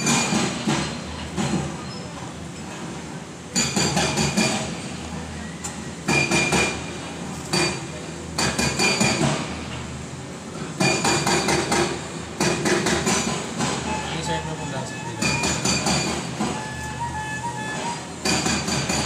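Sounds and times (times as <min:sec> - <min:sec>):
hammering on metal: 0:08.4 - 0:09.5, 0:10.8 - 0:14.0, 0:15.0 - 0:16.6, 0:18.2 - 0:19.0.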